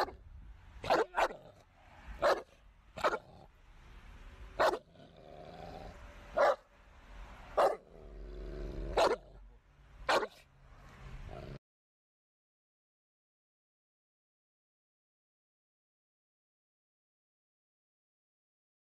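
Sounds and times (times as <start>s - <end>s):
large dog barking: 0.0s - 0.2s, 0.8s - 3.5s, 4.6s - 5.3s, 6.3s - 6.7s, 7.6s - 8.1s, 8.8s - 9.4s, 10.0s - 10.4s.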